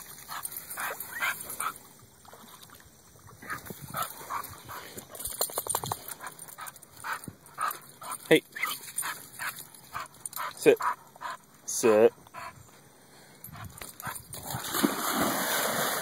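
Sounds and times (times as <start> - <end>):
dog whining and yipping: 0.8 - 1.7, 8.5 - 11.4.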